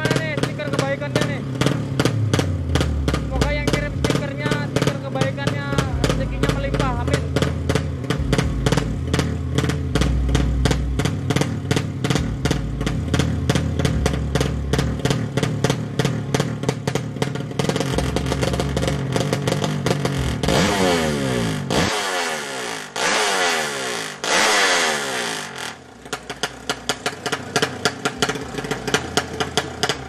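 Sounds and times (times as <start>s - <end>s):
motorcycle engine revving: 0.0s - 30.0s.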